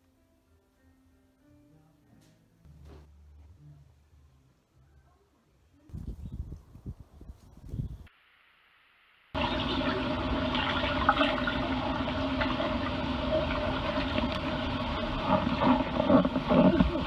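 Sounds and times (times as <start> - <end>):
steady hum: 8.9 - 17.0
water rushing and bubbling: 9.4 - 17.0.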